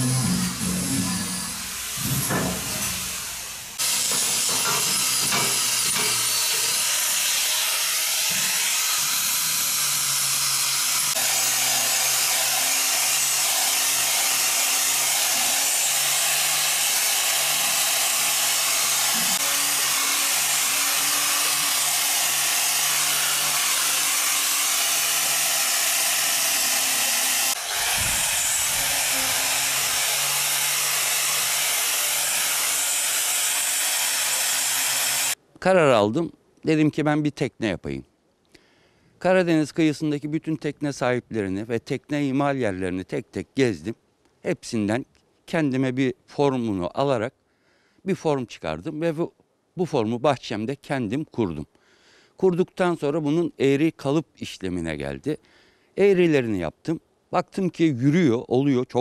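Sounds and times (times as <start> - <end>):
power tool hissing on metal tubing: 0.0 - 35.4.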